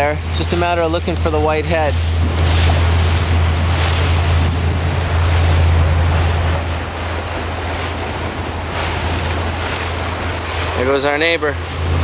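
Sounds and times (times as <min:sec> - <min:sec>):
motorboat engine humming: 0:00.0 - 0:12.0
water washing around boat: 0:00.0 - 0:12.0
wind noise on microphone: 0:00.0 - 0:12.0.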